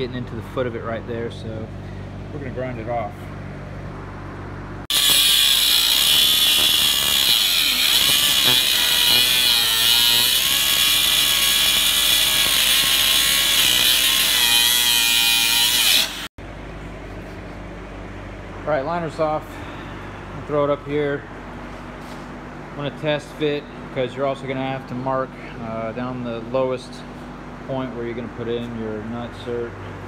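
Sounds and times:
angle grinder grinding steel: 4.9s - 16.3s.

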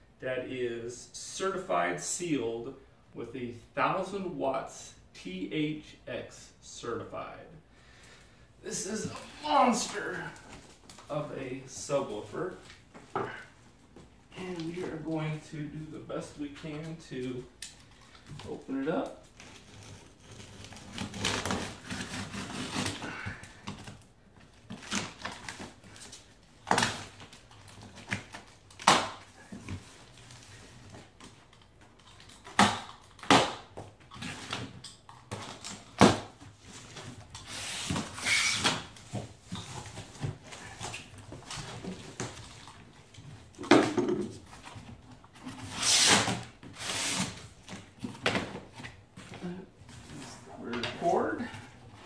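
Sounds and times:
cardboard and tape tearing: 19.3s - 24.0s, 45.4s - 48.0s.

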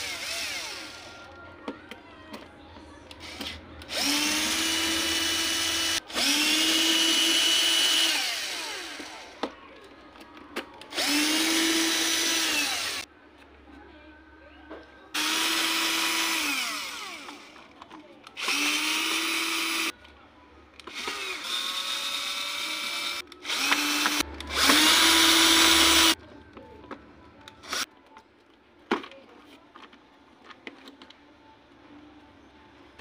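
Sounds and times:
power drill whirring: 0.0s - 1.2s, 3.2s - 9.4s, 10.9s - 13.1s, 15.2s - 17.6s, 18.4s - 19.9s, 20.9s - 26.2s, 27.6s - 27.9s.

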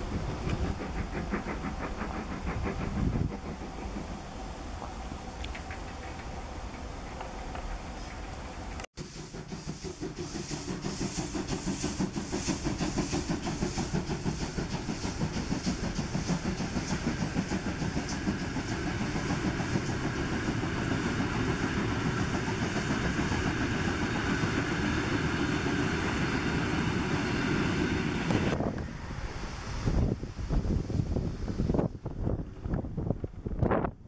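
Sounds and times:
train wheels clattering on rails: 0.0s - 28.6s
steam locomotive chuffing: 0.0s - 30.9s
steam hissing: 0.0s - 32.1s.

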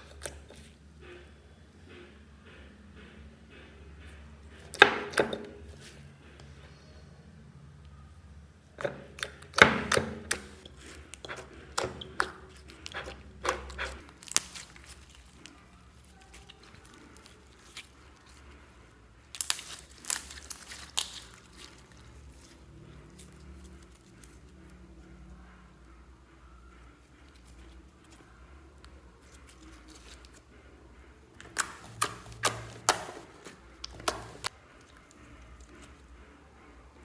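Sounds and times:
slime squishing: 8.6s - 24.8s, 27.0s - 37.0s
slime clicking and popping: 31.4s - 35.0s.

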